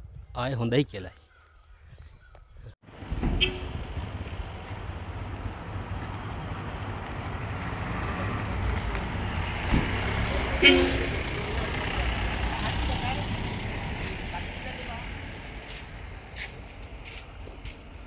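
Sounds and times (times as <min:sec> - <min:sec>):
vehicle engine running: 0:02.9 - 0:16.3
short horn toot: 0:03.3 - 0:03.8, 0:10.6 - 0:11.2.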